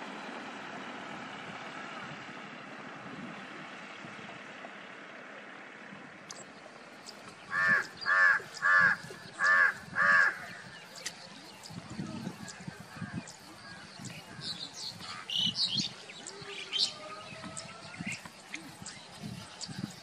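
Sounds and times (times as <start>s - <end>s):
bird calls: 6.3s - 20.0s.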